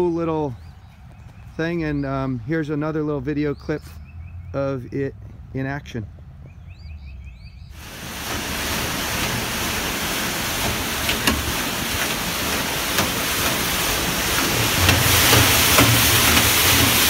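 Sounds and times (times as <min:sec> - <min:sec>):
concrete mixer rushing and rumbling: 0:07.8 - 0:17.0.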